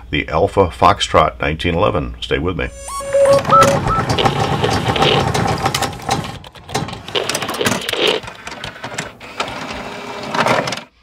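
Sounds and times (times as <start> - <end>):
mechanical clicking and ratcheting: 3.9 - 8.8.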